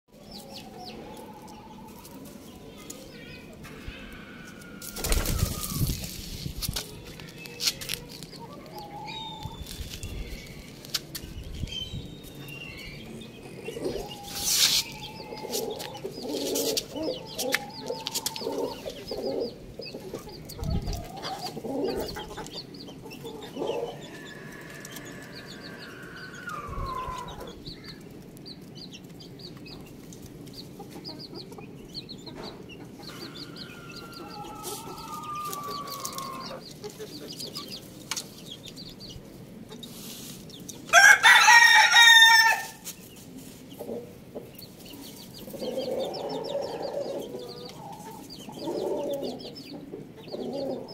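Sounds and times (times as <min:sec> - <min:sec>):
chickens clucking: 0:00.1 - 0:41.4, 0:42.3 - 0:50.9
thin high peeping: 0:00.1 - 0:49.8
long falling calls: 0:00.2 - 0:06.2, 0:23.2 - 0:28.0, 0:33.1 - 0:36.7.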